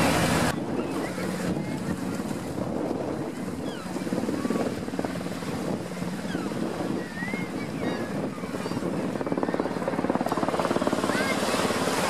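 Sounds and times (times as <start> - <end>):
helicopter rotor beating: 0.0 - 12.0.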